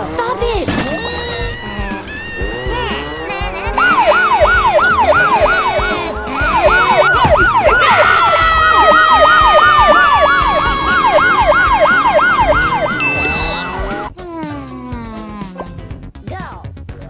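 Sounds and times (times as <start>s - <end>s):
siren yelping: 1.1s - 14.1s
steady siren tone sliding down: 1.5s - 14.1s.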